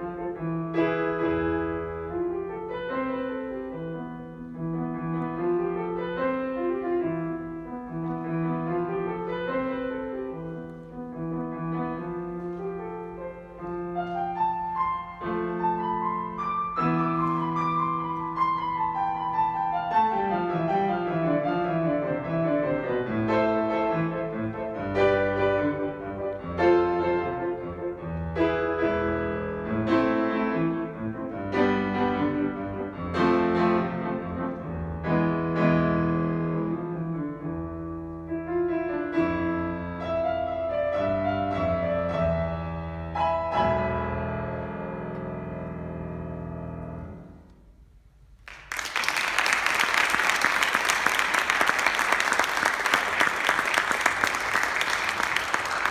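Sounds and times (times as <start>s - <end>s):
grand piano chords: 0.0s - 48.8s
audience applause: 48.4s - 55.9s.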